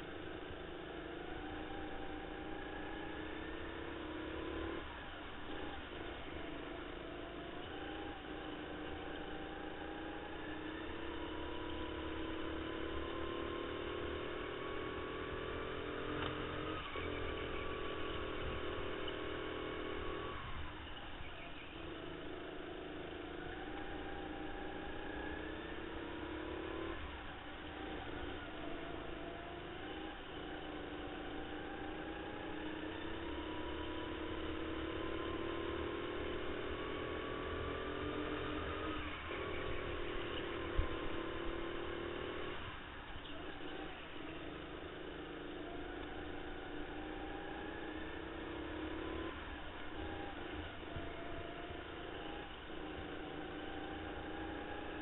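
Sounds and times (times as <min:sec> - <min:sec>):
go-kart motor revving: 0:00.0 - 0:55.0.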